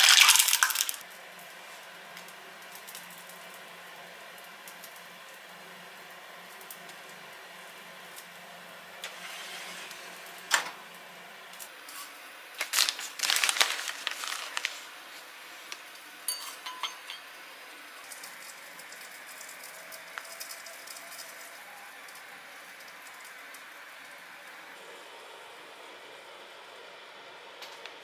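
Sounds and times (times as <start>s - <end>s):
kitchenware clattering and clinking: 16.3s - 17.3s.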